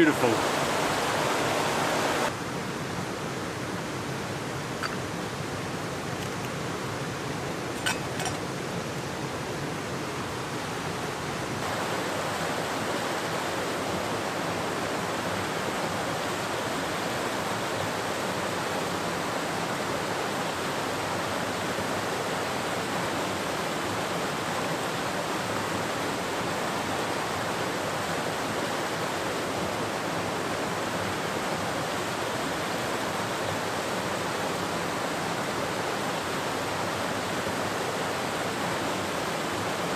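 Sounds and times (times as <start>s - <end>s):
stream rushing over rocks: 0.0s - 39.9s
metal lid clinking on pot: 4.8s - 5.0s, 7.8s - 8.4s.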